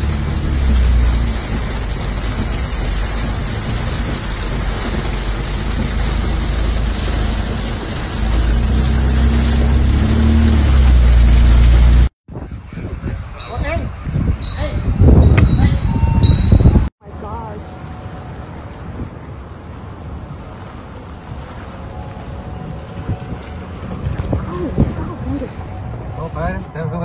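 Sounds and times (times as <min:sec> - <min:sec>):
heavy rain on car windshield: 0:00.0 - 0:12.1
low rumble: 0:00.0 - 0:12.1.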